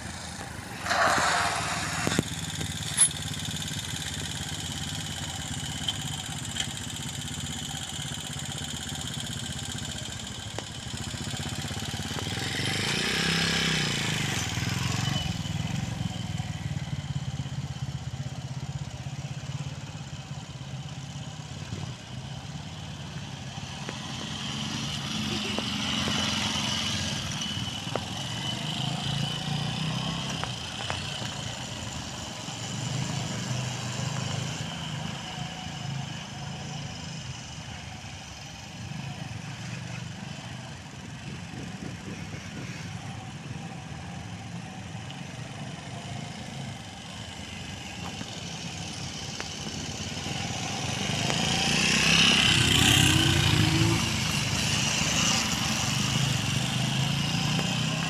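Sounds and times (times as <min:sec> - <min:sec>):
motorcycle engine passing: 0:00.1 - 0:04.3, 0:47.9 - 0:58.0.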